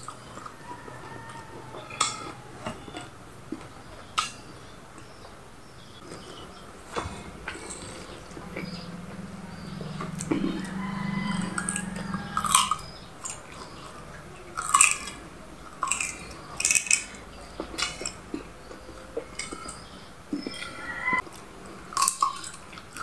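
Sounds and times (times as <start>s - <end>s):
steady low hum: 5.8s - 21.2s.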